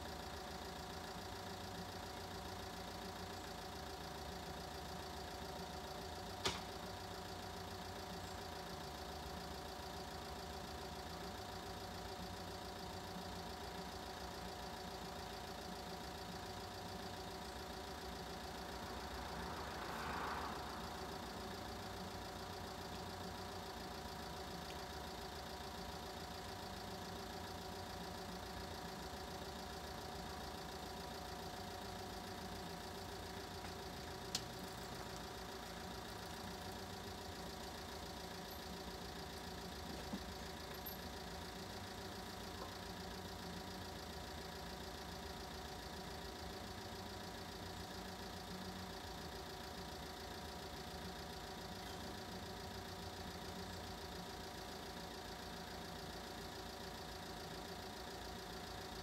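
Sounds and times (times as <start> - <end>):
engine idling: 0.0 - 59.0
sharp click: 6.4 - 6.7.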